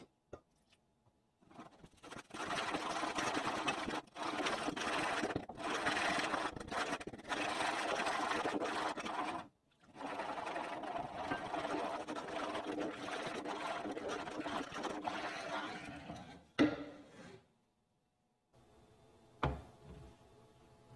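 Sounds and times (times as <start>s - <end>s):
wooden spoon stirring in saucepan: 1.4s - 17.4s.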